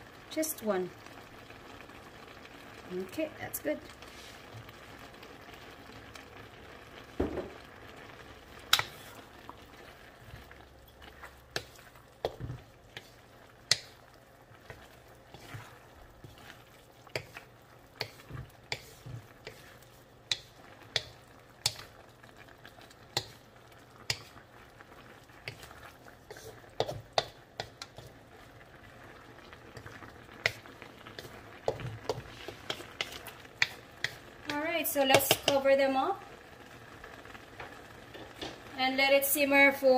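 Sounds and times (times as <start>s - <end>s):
pan sizzling: 0.0s - 39.9s
wooden spatula scraping a wok: 3.9s - 4.7s, 8.7s - 22.0s, 25.4s - 28.4s, 29.6s - 35.7s.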